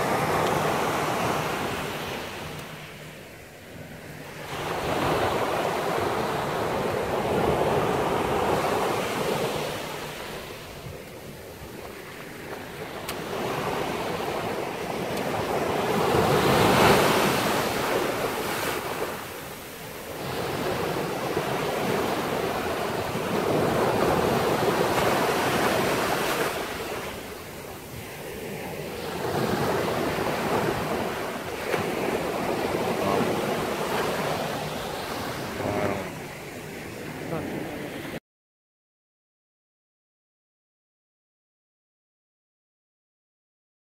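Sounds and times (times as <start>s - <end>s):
ocean surf breaking: 0.0s - 38.2s
wind on microphone: 3.8s - 38.2s.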